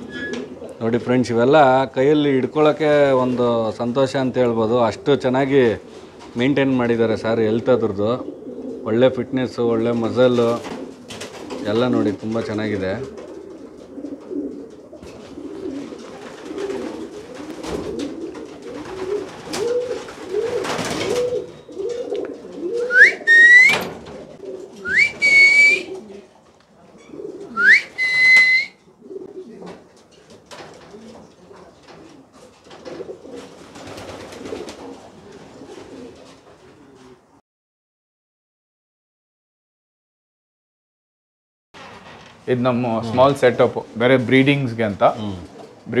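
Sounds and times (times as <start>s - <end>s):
pigeons cooing: 0.0s - 37.4s, 45.0s - 46.0s
loud rising whistles: 22.9s - 23.8s, 24.8s - 25.9s, 27.6s - 28.8s.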